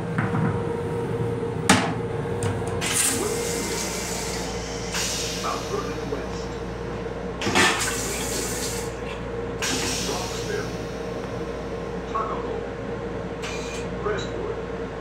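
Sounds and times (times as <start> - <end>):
train hum: 0.0 - 15.0
toilet flushing hiss: 2.8 - 6.3, 7.5 - 9.0, 9.6 - 11.0.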